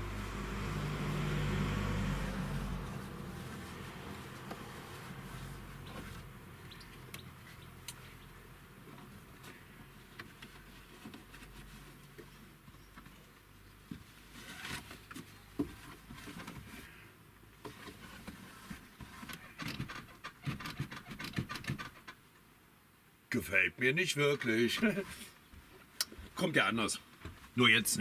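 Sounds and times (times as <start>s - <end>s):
straps rustling: 2.8s - 17.0s.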